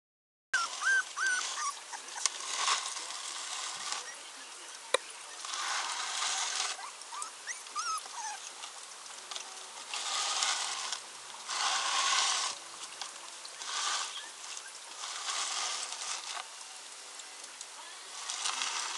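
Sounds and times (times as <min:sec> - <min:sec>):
puppy whimpering: 0:00.6 - 0:03.0, 0:05.9 - 0:08.5
scratching and rustling: 0:00.6 - 0:18.9.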